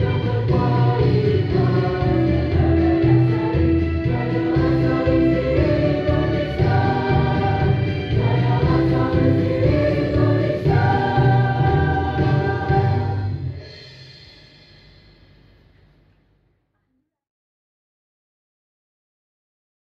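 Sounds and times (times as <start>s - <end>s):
low bass accompaniment: 0.0s - 13.6s
choir singing held chords: 0.0s - 14.3s.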